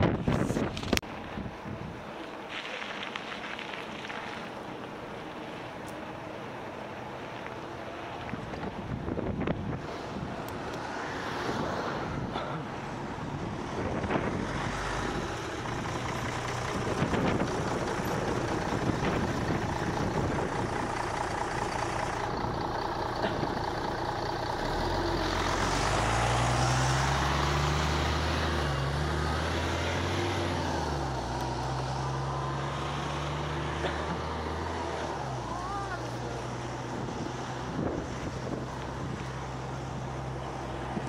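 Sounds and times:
wind noise on microphone: 0.0 - 2.1, 8.2 - 12.4, 13.2 - 20.9, 36.8 - 40.1
vehicle engine running: 12.6 - 41.0.

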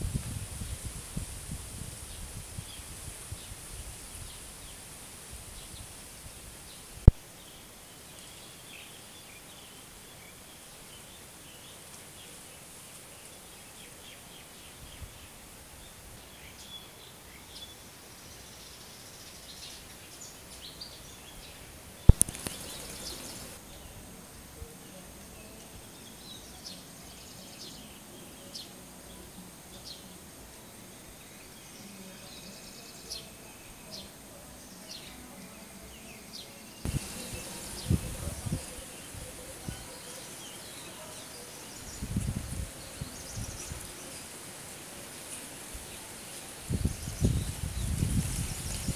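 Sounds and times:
small birds chirping: 2.0 - 48.9
sharp click: 22.1 - 22.8.

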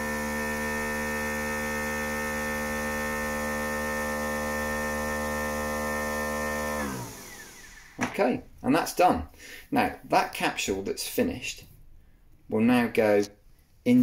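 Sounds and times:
coffee machine spinning hum: 0.0 - 8.0.

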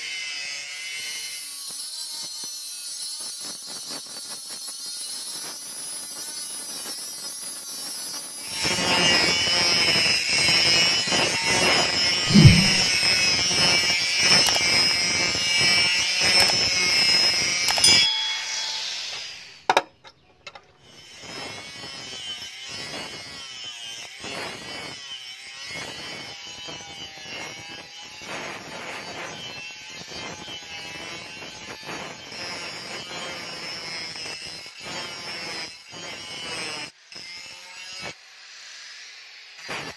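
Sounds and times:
angle grinder grinding steel: 17.5 - 19.8.

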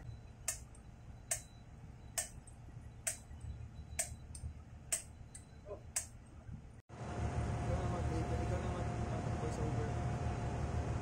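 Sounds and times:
hammer tapping steel drift: 0.4 - 6.2.

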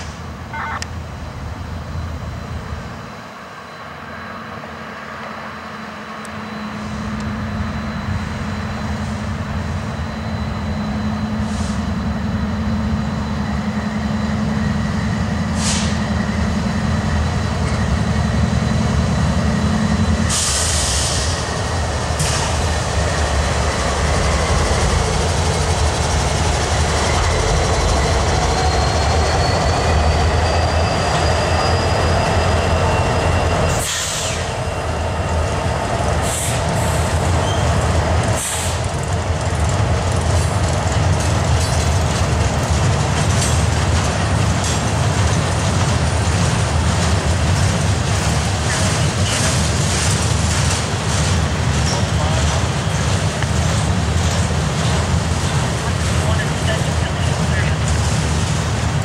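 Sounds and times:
diesel locomotives running: 0.0 - 59.0
short hisses: 15.6 - 16.0.

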